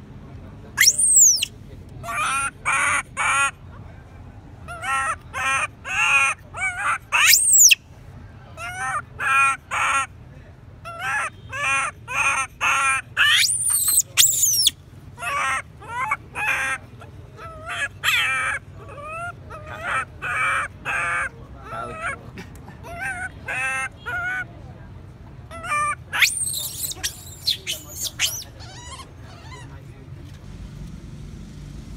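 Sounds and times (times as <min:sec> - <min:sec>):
baby monkey whimpering: 0:00.8 - 0:01.5, 0:10.9 - 0:16.8, 0:17.4 - 0:21.3, 0:25.6 - 0:29.7
monkey shrill screams: 0:00.8 - 0:01.5, 0:04.7 - 0:07.8, 0:10.9 - 0:16.8, 0:17.5 - 0:21.3, 0:25.5 - 0:29.7.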